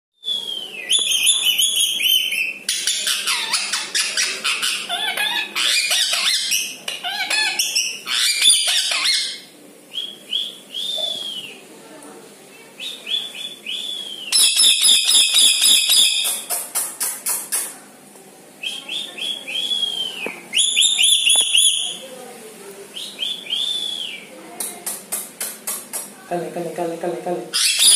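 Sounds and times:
parakeet whistled calls: 0.2s - 11.6s, 12.9s - 16.5s, 18.6s - 22.0s, 27.6s - 27.9s
parakeet harsh chattering: 1.1s - 9.5s, 14.3s - 17.8s, 20.6s - 22.0s, 27.5s - 27.9s.

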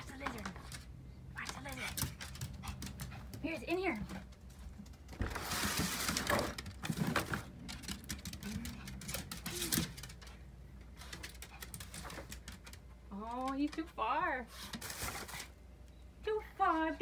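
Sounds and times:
paper and plastic bags crinkling: 5.1s - 10.3s, 14.7s - 15.6s.

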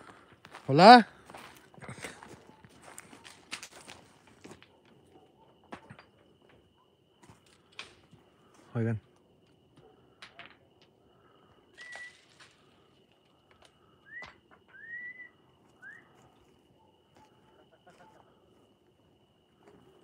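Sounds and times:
faint rising whistles: 11.7s - 12.6s, 13.9s - 16.9s.

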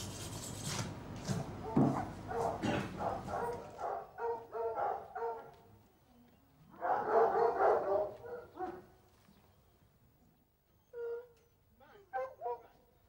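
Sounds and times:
hounds barking and yelping: 1.6s - 5.5s, 6.8s - 8.9s, 12.1s - 12.8s.

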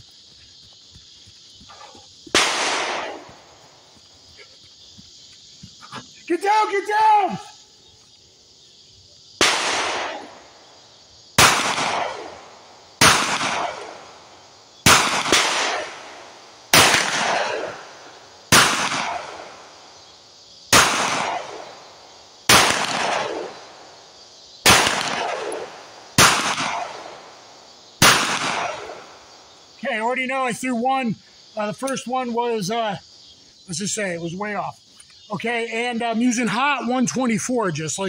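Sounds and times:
pistol shots echoing: 2.3s - 3.5s, 9.4s - 10.4s, 11.4s - 14.2s, 14.8s - 19.8s, 20.7s - 21.9s, 22.5s - 23.9s, 24.6s - 27.4s, 28.0s - 29.2s.

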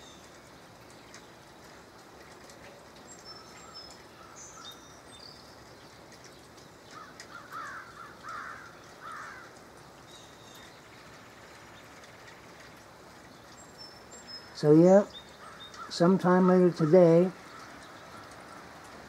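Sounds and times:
light rain hiss: 0.0s - 19.0s
small birds chirping: 0.0s - 19.0s
crow cawing: 6.9s - 9.6s, 15.4s - 16.1s, 16.8s - 18.7s.

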